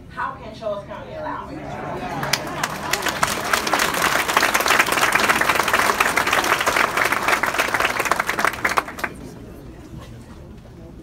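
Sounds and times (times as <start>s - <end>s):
audience applauding: 1.9s - 9.3s.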